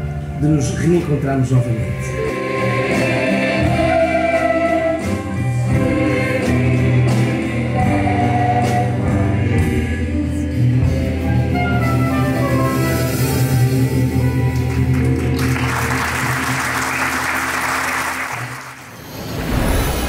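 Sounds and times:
bass guitar: 0.0s - 16.6s
drums: 0.0s - 20.0s
choir singing: 2.1s - 13.6s.

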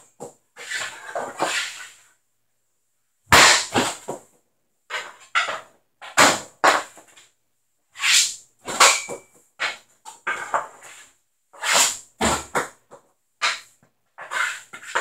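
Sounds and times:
hockey stick slapping pucks: 0.6s - 1.9s, 3.3s - 4.2s, 11.6s - 15.0s.

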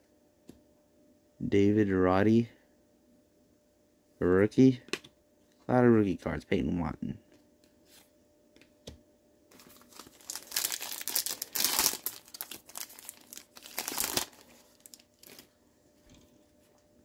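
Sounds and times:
foil wrapper crinkling: 9.5s - 15.5s.

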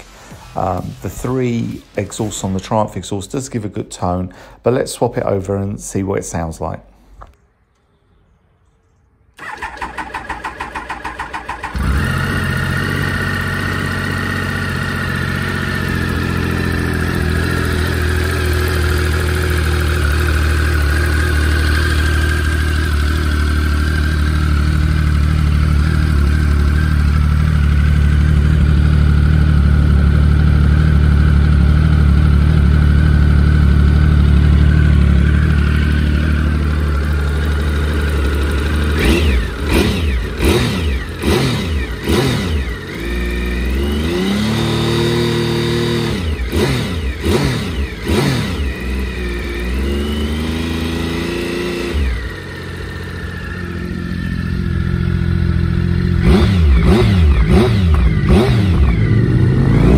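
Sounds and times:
starter motor cranking: 9.4s - 14.0s
motorcycle engine idling: 9.4s - 59.9s.

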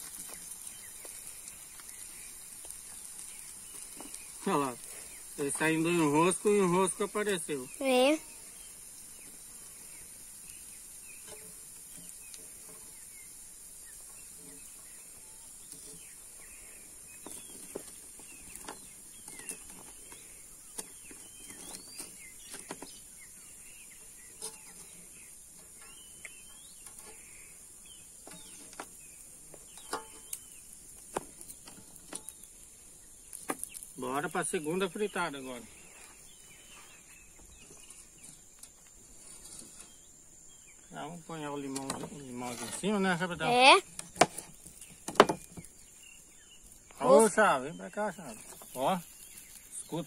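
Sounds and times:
fish frying in hot oil: 0.0s - 23.4s
birds chirping: 0.0s - 50.0s.

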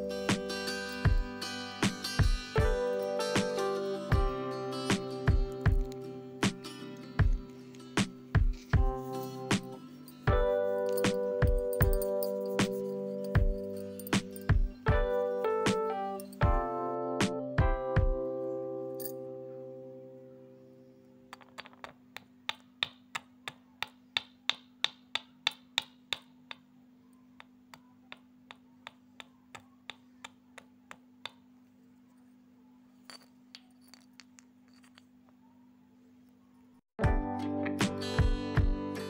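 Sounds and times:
pestle pounding in clay mortar: 22.1s - 26.7s.

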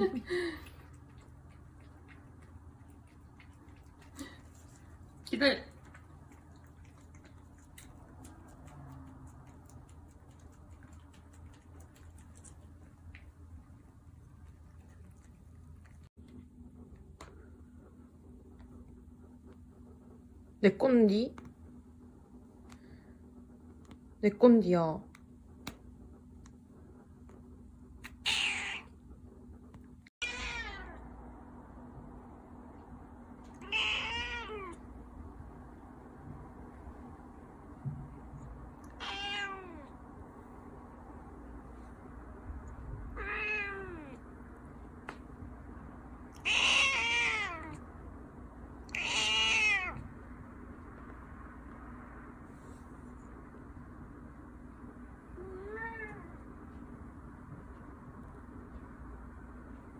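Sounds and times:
cat meowing: 28.0s - 28.9s, 30.2s - 31.0s, 33.6s - 34.8s, 38.9s - 39.9s, 43.2s - 44.2s, 46.4s - 47.8s, 48.9s - 50.0s, 55.4s - 56.3s.

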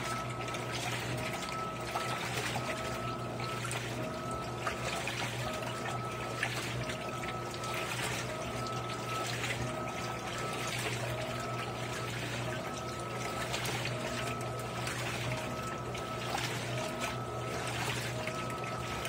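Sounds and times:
washing machine motor hum: 0.0s - 19.0s
water sloshing: 0.0s - 19.0s.

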